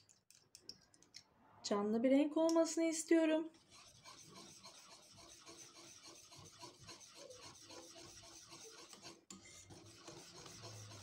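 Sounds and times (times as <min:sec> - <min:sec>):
whisk scraping a bowl: 0:03.6 - 0:11.0.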